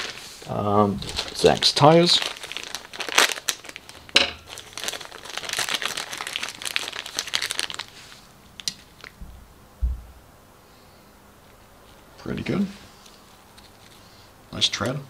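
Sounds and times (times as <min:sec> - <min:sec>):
plastic bag crinkling: 0:00.0 - 0:09.2
dull thump: 0:09.2 - 0:10.2.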